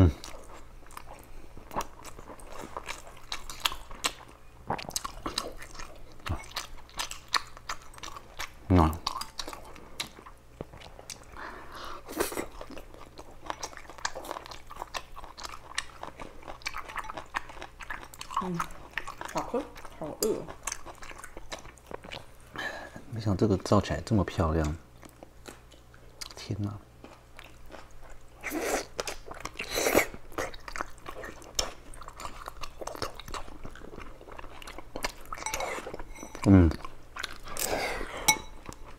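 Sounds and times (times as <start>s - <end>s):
person chewing food: 0.0s - 23.1s, 24.6s - 26.4s, 27.0s - 38.9s.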